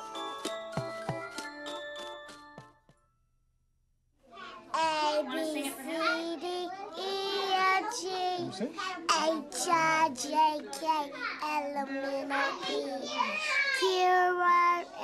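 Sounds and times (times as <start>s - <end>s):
young children singing: 4.8s - 10.8s.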